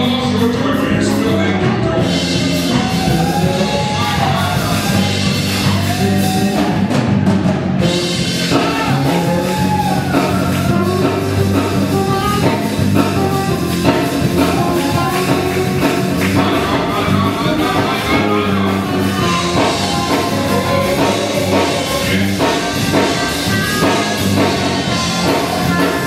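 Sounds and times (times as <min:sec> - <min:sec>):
people singing: 0:00.0 - 0:06.8, 0:13.9 - 0:26.0
band with drums and bass: 0:00.0 - 0:26.0.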